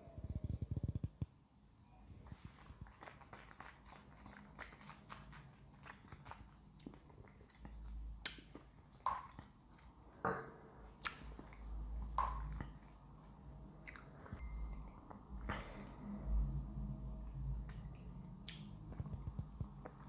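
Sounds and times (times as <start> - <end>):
wet mouth sounds tasting: 2.8 - 15.7, 17.2 - 20.0.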